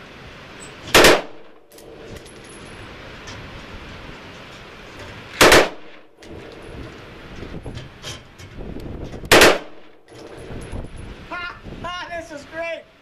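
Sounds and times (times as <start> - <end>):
rifle firing rapid bursts: 1.0 - 1.4, 5.4 - 5.9, 9.3 - 9.8
wind noise on microphone: 1.9 - 12.5.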